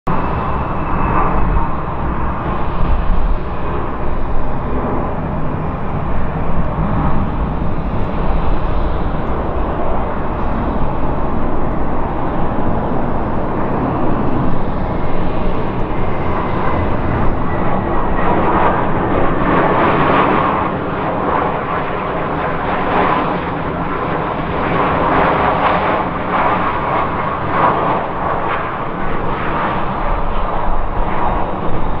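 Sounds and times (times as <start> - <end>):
falling engine whine: 0.1 - 22.3
jet engine rush: 0.1 - 32.0.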